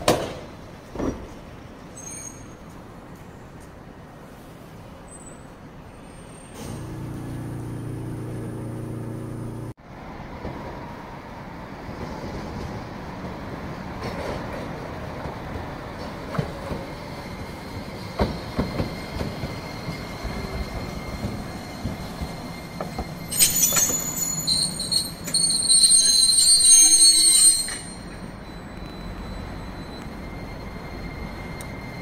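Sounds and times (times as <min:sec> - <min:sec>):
tram rolling over rails: 0:00.0 - 0:32.0
steel wheel squeal: 0:01.9 - 0:02.6, 0:17.0 - 0:32.0.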